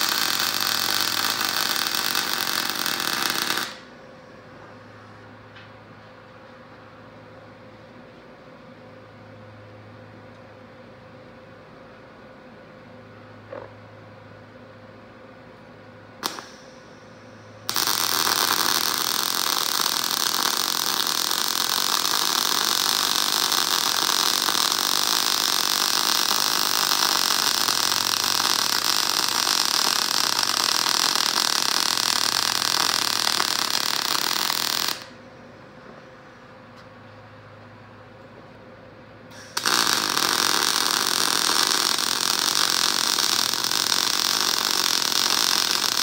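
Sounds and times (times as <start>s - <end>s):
welder arc crackling: 0.0s - 3.9s, 16.2s - 16.8s, 17.7s - 35.2s, 39.4s - 46.0s.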